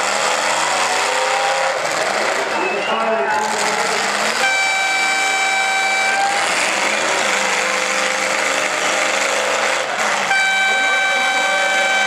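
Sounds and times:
car engines running: 0.0s - 12.0s
horn long blasts: 4.2s - 12.0s.

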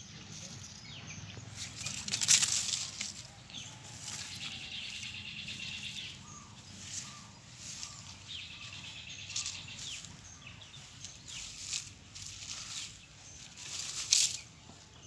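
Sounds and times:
chicks scuffling in dry dirt: 0.0s - 15.0s.

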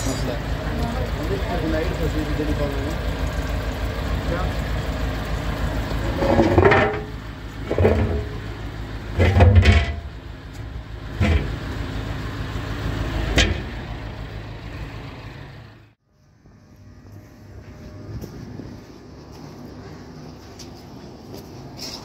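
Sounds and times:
low engine drone: 0.0s - 22.0s
manhole cover clanking: 5.2s - 11.7s.

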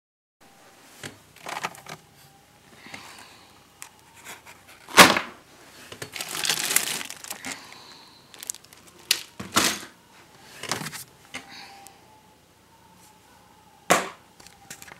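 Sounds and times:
rustling and crinkling: 0.7s - 11.5s.

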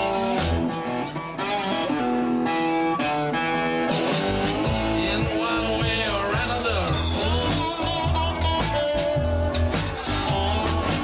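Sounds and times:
amplified guitars ringing notes: 0.0s - 11.0s
bass: 0.0s - 11.0s
blues band music: 0.0s - 11.0s.

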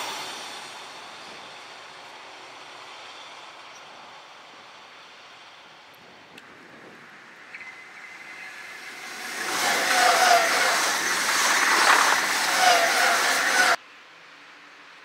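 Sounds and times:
electric train passing at speed: 0.0s - 13.8s
whining tones: 7.2s - 13.8s.

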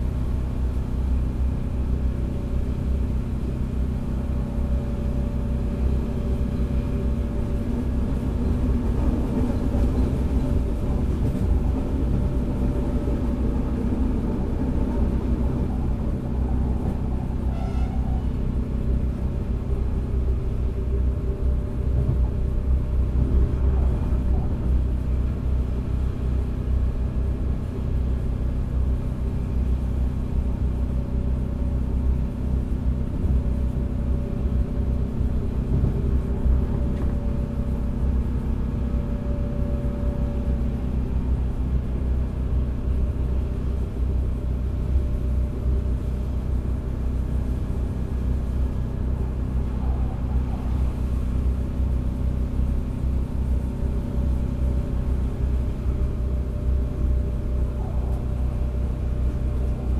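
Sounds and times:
diesel engine drone: 0.0s - 59.9s
train wheels rumbling on track: 0.0s - 59.9s
faint whine: 48.3s - 59.9s.

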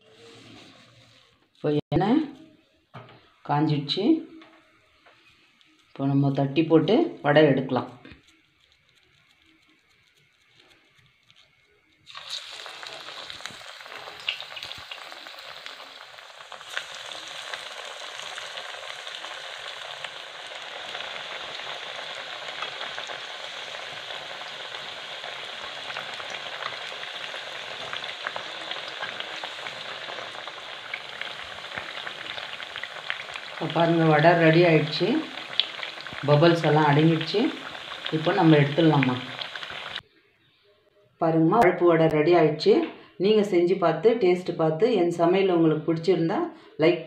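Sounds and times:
oil sizzling with crackles: 0.0s - 40.0s
deep-frying in hot oil: 3.5s - 40.0s.

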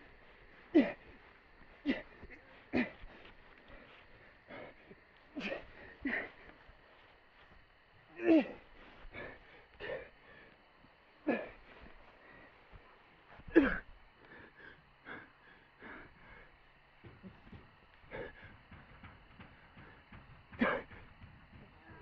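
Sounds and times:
person gasping and wheezing: 0.2s - 6.6s, 7.7s - 10.6s, 11.2s - 12.5s, 13.3s - 18.8s, 20.5s - 21.1s.

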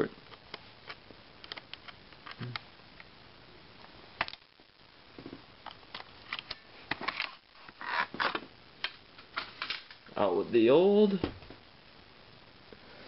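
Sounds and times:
sharp plastic clicks: 0.3s - 3.1s.

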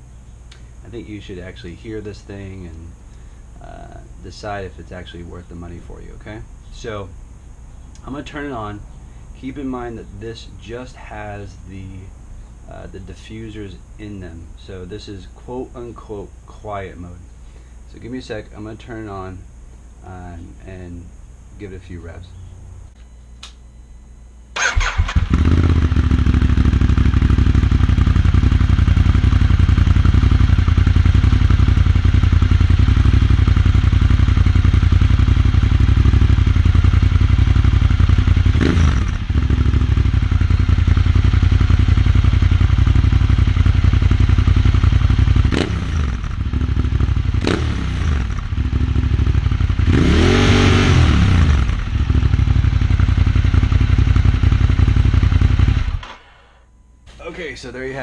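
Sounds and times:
motorcycle engine idling and revving: 24.6s - 56.3s.

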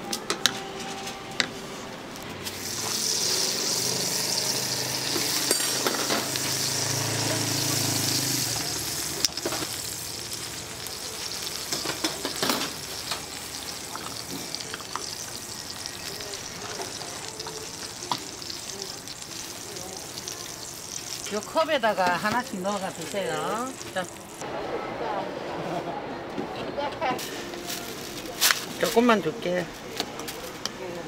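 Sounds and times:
cooking trays sizzling: 0.0s - 24.4s, 27.2s - 29.7s
utensils and bowls clicking: 4.6s - 9.8s, 11.5s - 15.8s.

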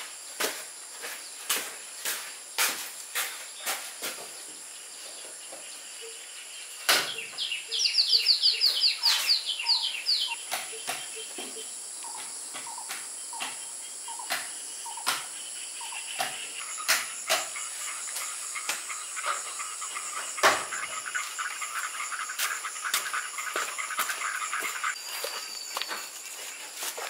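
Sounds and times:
insects buzzing: 0.0s - 27.0s
bird trill: 7.1s - 12.8s.

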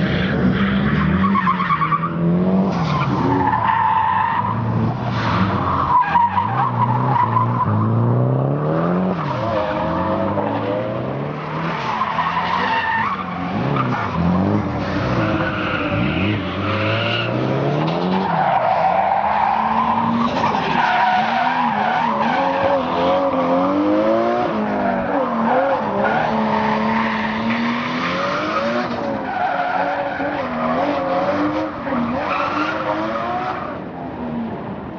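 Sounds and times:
car engine revving: 6.3s - 33.6s.

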